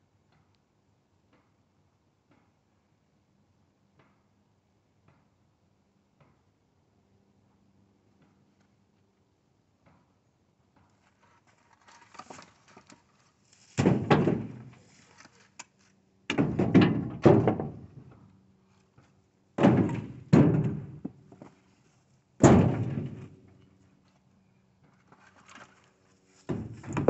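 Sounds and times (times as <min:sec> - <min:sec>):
firewood thunking into truck bed: 0:13.7 - 0:14.8, 0:16.3 - 0:18.2, 0:19.6 - 0:21.5, 0:22.4 - 0:23.4, 0:26.4 - 0:27.0.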